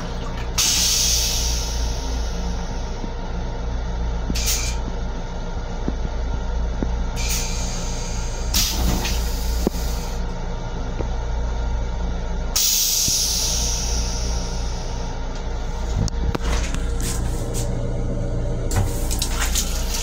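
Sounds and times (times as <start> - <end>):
train interior rumble: 0.0 - 20.0
air hissing bursts: 0.6 - 2.6, 7.2 - 10.2, 12.6 - 15.0.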